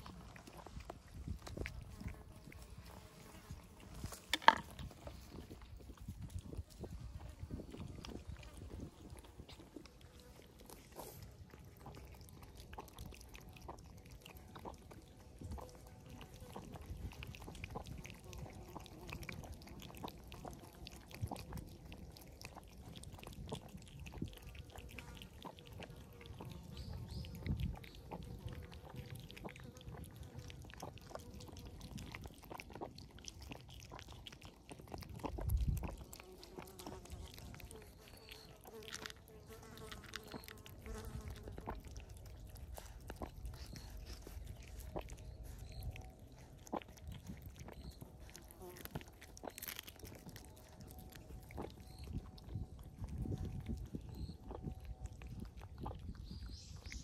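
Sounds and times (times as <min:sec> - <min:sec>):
cats crunching dry kibble: 0:00.0 - 0:57.0.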